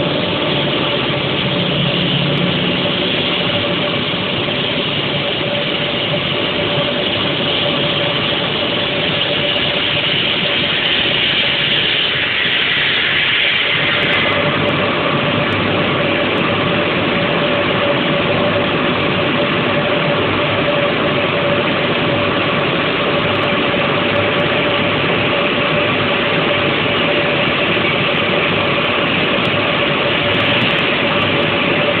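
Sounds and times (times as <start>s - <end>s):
steady machine hum: 0.0s - 32.0s
circular saw cutting stone: 6.6s - 14.5s
water spray: 10.0s - 14.4s.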